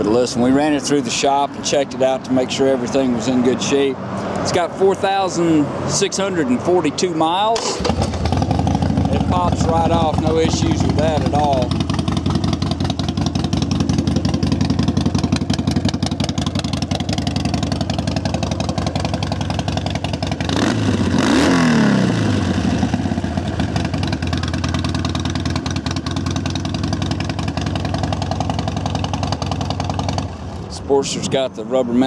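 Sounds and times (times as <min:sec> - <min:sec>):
motorcycle engine idling: 0:07.6 - 0:21.3, 0:22.1 - 0:30.7.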